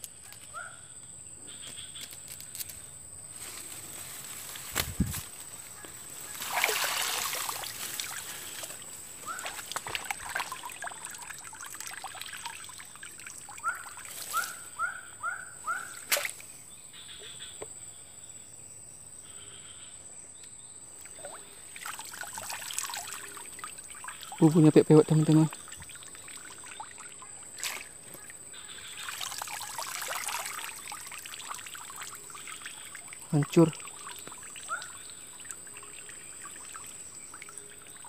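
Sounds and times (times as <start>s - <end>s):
grass rustling: 1.5s - 14.8s, 15.8s - 16.5s, 21.6s - 38.0s
water trickling and splashing: 3.3s - 14.7s, 20.9s - 38.0s.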